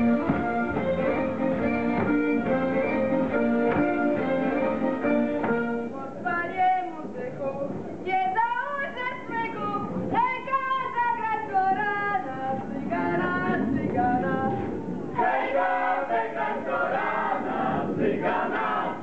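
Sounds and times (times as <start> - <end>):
mixed choir singing folk song: 14.4 - 19.0.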